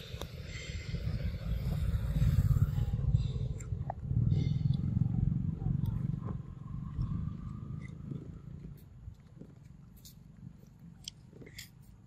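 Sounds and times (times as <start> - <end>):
low rumble: 0.0 - 8.7.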